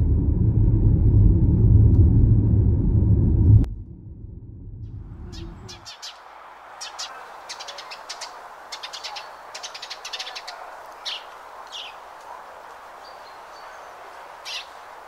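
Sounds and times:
small birds chirping: 5.1 - 15.0.

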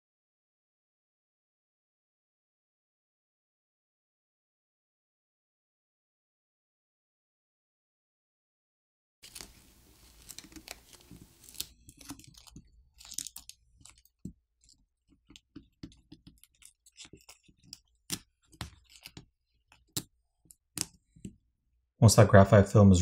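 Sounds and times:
adhesive film peeling and crackling: 9.2 - 21.2
film crinkling and ticking: 9.2 - 21.3.

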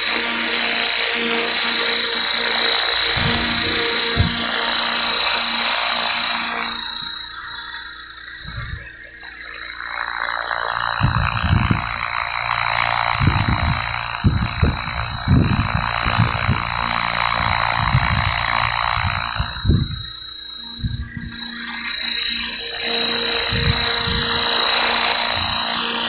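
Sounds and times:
rc helicopter motor whine: 0.0 - 26.0
rotor whooshing: 2.9 - 5.6
low thumps: 3.1 - 4.7.

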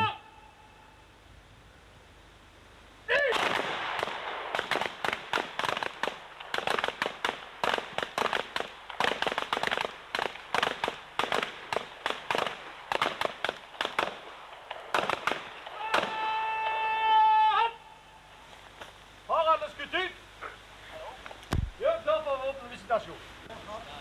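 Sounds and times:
pistol shots: 3.3 - 16.1.

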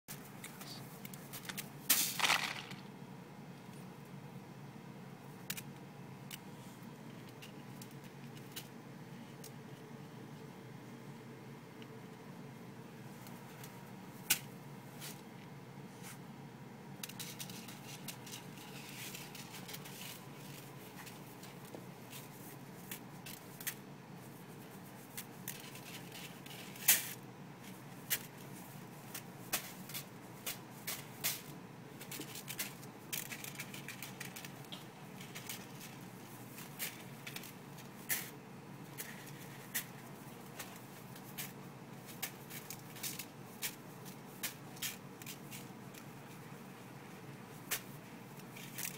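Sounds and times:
rice grains rustling: 1.9 - 2.8.

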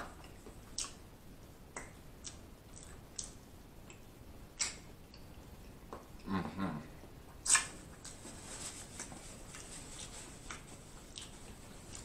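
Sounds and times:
chewing mouth clicks and smacks: 0.2 - 1.0, 1.7 - 4.0, 4.6 - 5.3, 7.3 - 8.2, 9.0 - 12.0.

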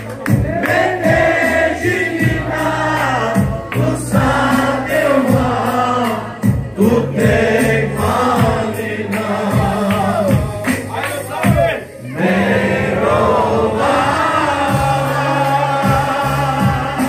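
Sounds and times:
hand clapping: 0.0 - 1.0, 9.0 - 11.8
group singing worship song: 0.2 - 10.9, 12.1 - 17.0.

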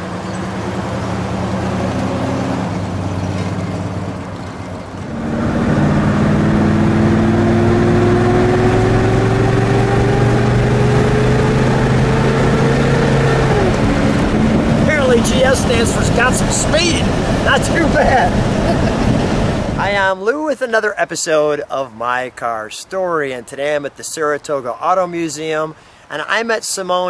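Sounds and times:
car engine driving by: 0.0 - 20.1.

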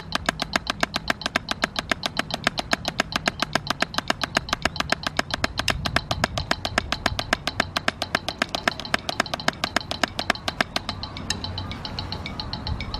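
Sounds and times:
drumsticks on practice pad: 0.0 - 12.9.

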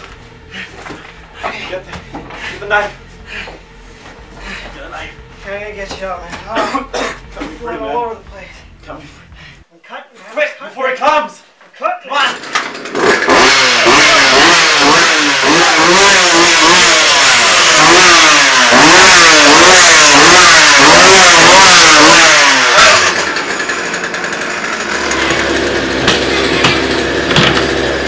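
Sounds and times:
low hum: 0.0 - 9.7
chainsaw engine revving: 12.4 - 28.0.

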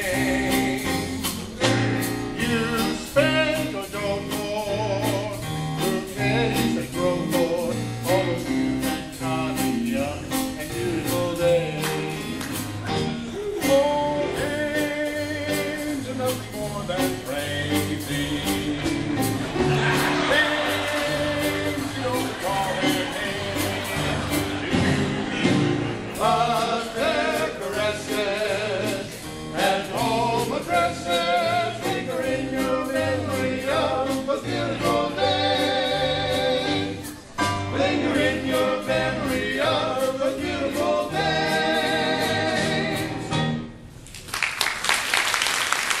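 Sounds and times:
male chorus singing: 0.0 - 1.3, 13.6 - 43.4
instrumental accompaniment: 0.0 - 44.0
audience applause: 19.3 - 26.1, 44.1 - 46.0.

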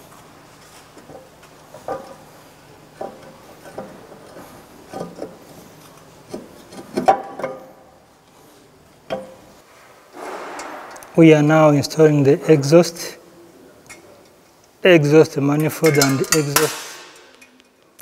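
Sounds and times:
faint steady hum: 0.0 - 18.0
metal tools clinking and knocking: 15.6 - 17.7.

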